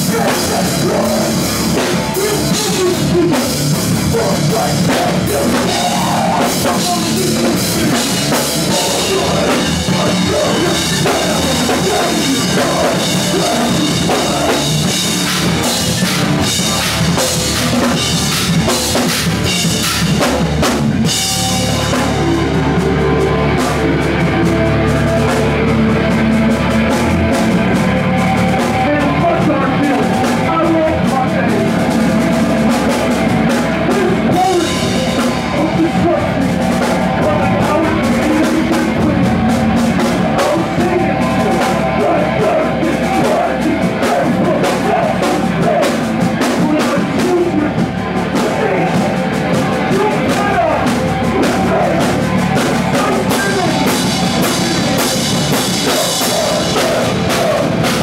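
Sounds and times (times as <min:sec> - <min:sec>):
held guitar chords ringing: 0:00.0 - 0:58.0
rock band playing loud: 0:00.0 - 0:58.0.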